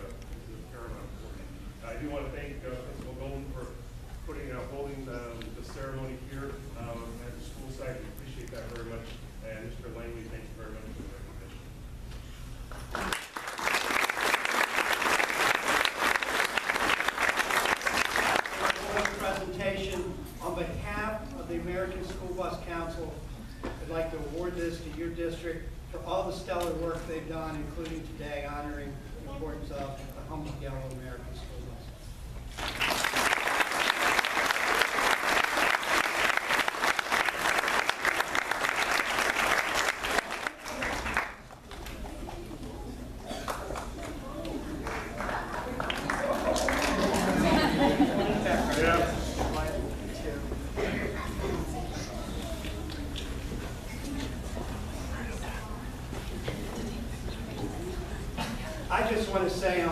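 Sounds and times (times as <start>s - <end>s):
audience applauding: 12.7s - 19.2s, 32.5s - 42.5s, 43.4s - 48.8s
murmur of voices: 40.0s - 59.9s.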